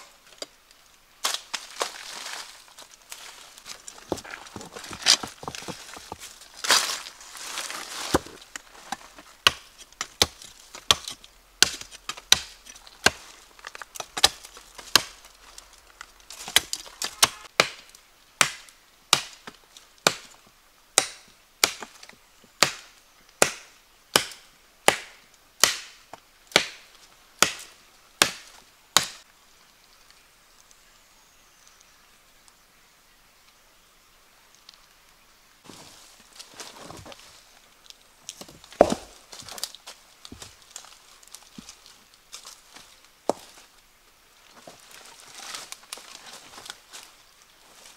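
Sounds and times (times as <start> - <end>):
wood chopping strikes: 7.6 - 15.2, 16.4 - 20.3, 21.0 - 22.0, 22.6 - 29.2, 38.3 - 39.7.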